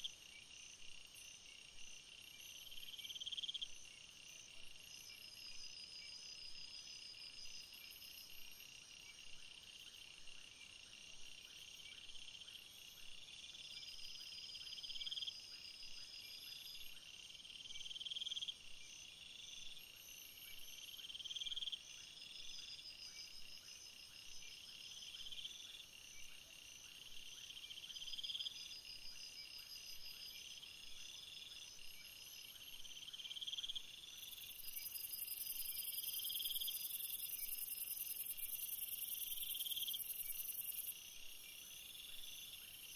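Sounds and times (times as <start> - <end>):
insects trilling: 12.2 - 42.9
high pulsed insect chirps: 27.9 - 42.9.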